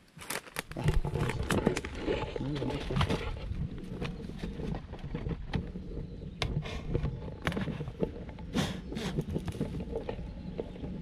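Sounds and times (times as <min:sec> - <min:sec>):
plastic sack rustling and crinkling: 0:00.0 - 0:03.9
sharp clicks and scrapes: 0:00.2 - 0:05.8.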